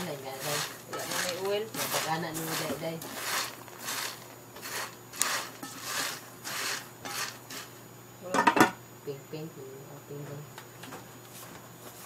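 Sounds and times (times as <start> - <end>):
popcorn stirred in a pot: 0.0 - 7.8.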